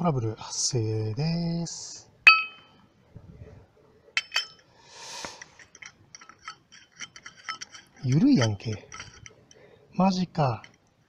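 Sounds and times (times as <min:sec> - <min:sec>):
metal wrench clicking on filter: 0:04.2 - 0:04.6, 0:05.4 - 0:09.6.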